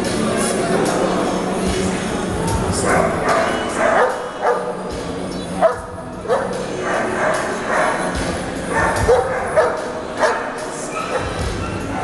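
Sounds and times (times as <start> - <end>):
crowd chatter: 0.0 - 12.0
dogs barking: 2.8 - 12.0.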